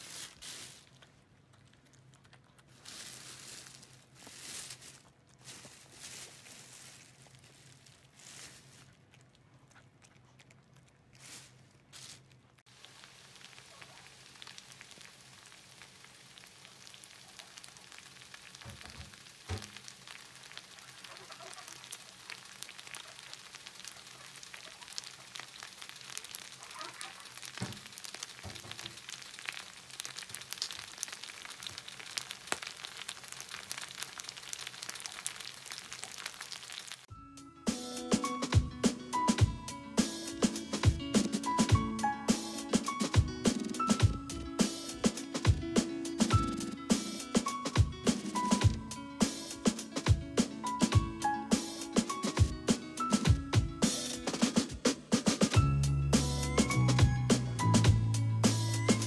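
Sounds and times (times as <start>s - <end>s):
rice sizzling on hot plate: 0.0s - 1.0s, 2.8s - 8.7s, 11.2s - 37.1s.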